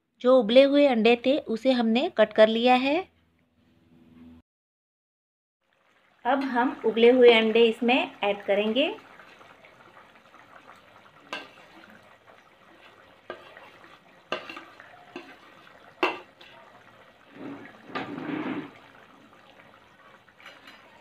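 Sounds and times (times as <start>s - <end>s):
gravy simmering in a pan: 5.6s - 21.0s
wet sloshing stir of gravy: 9.0s - 21.0s
utensils knocking against pan: 14.3s - 15.4s, 16.0s - 16.5s.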